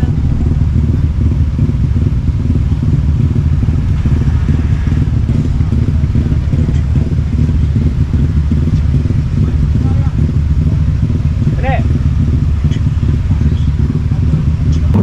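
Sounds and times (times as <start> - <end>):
vehicle engine and road rumble: 0.0 - 15.0.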